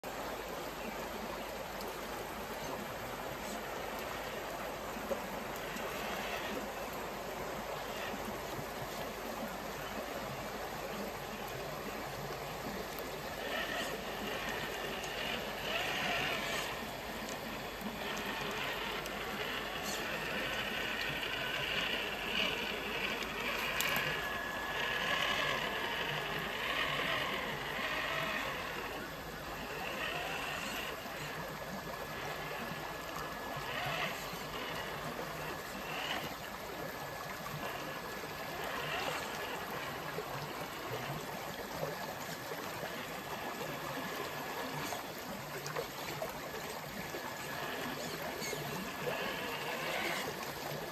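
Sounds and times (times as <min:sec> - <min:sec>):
creek water flowing over rocks: 0:00.0 - 0:50.9
electric motor whirring: 0:12.9 - 0:36.6, 0:47.3 - 0:50.7.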